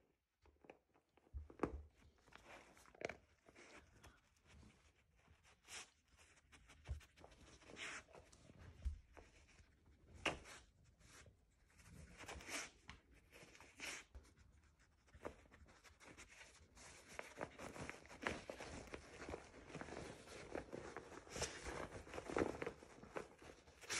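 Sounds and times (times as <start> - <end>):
small clicks and scuffs: 0.4 - 23.9
rustling fabric mat: 15.0 - 23.9.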